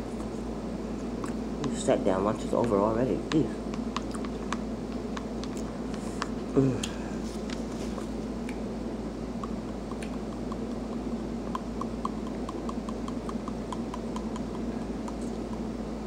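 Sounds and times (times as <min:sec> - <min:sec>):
room hum: 0:00.0 - 0:16.0
light evenly spaced ticks: 0:09.4 - 0:15.7.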